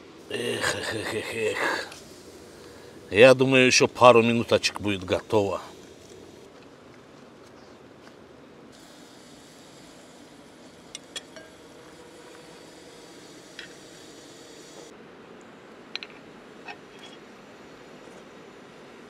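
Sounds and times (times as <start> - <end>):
chicken sizzling on spit: 0.0 - 6.5, 8.7 - 14.9.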